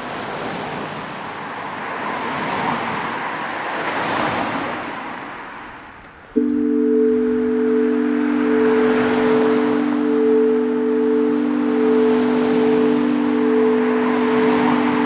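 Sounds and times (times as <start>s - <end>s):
cars passing: 0.0s - 15.0s
steady ringing chime: 6.4s - 15.0s.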